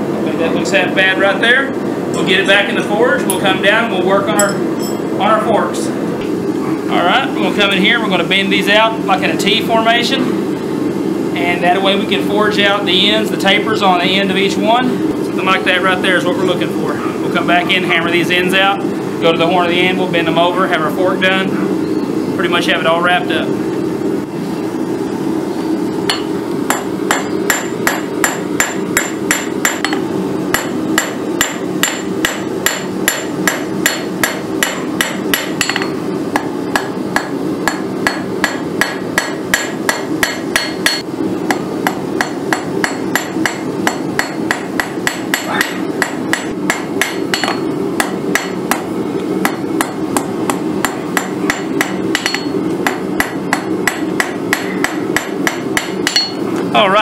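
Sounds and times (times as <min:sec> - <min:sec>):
hammer ringing on anvil: 0:04.4 - 0:05.1, 0:26.1 - 0:41.0, 0:42.2 - 0:48.8, 0:50.8 - 0:56.4.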